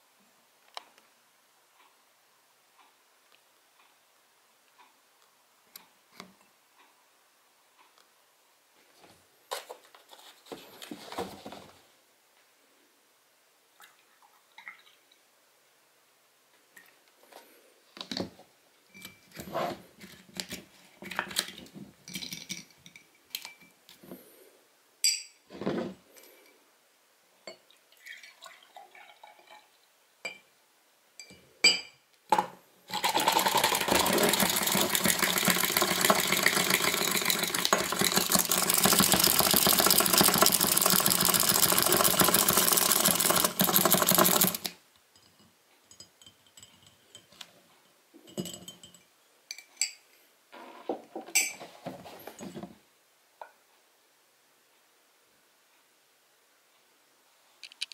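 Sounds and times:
glass mug clinking: 25.0 - 25.4, 31.2 - 32.0, 45.2 - 47.3, 48.2 - 50.0, 51.4 - 51.6
electric milk frother whisking: 32.9 - 44.7.

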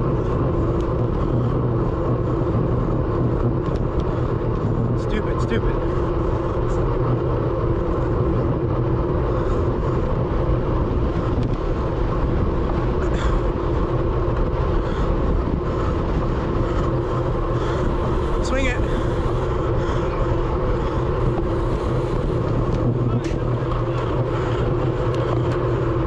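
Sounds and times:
low hum: 0.0 - 26.0
wind rushing over microphone: 0.0 - 26.0.

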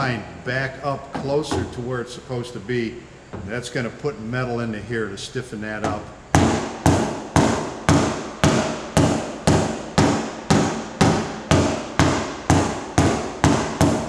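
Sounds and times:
hammer tapping sheet metal: 5.8 - 14.0.

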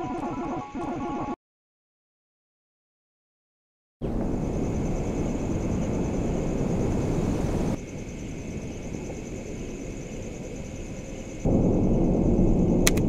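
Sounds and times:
low rumbling ambience: 4.0 - 13.0.

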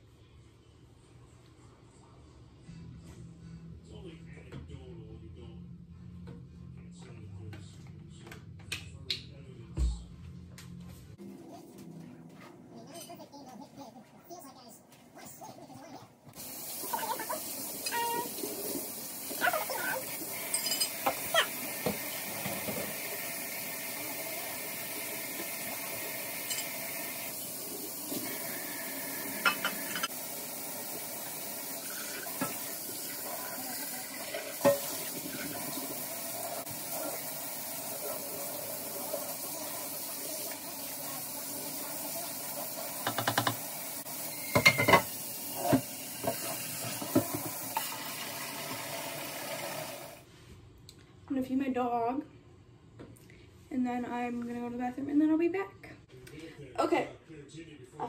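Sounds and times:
cups and utensils clinking: 20.3 - 23.0, 26.4 - 27.0, 29.4 - 30.2, 34.6 - 35.3, 44.3 - 48.0
tap running into sink: 43.0 - 43.7, 44.5 - 48.1.

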